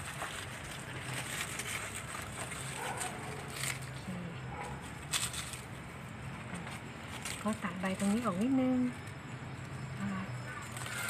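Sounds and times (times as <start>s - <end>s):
leaves rustling: 0.0s - 11.0s.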